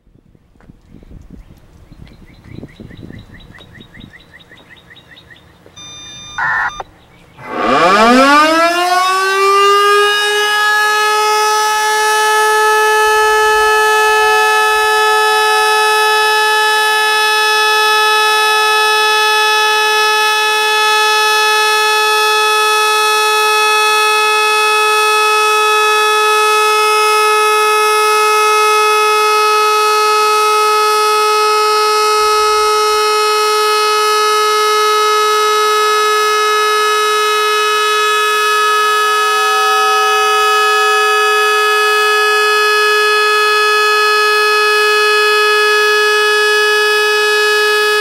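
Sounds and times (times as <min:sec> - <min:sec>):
brief tone: 0:05.8 - 0:06.8, 0:39.0 - 0:43.0
warning siren winding up: 0:05.8 - 0:48.0.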